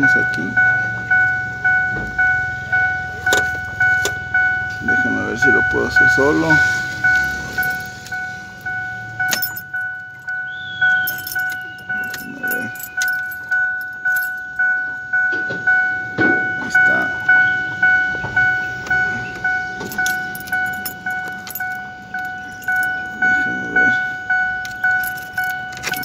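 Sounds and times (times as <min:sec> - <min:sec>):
dashboard warning chime dinging: 0:00.0 - 0:26.0
keys jangling: 0:03.2 - 0:04.2, 0:06.2 - 0:14.7, 0:18.8 - 0:23.6, 0:24.5 - 0:26.0
metal parts clicking: 0:09.3 - 0:10.3, 0:10.9 - 0:14.4, 0:24.6 - 0:26.0.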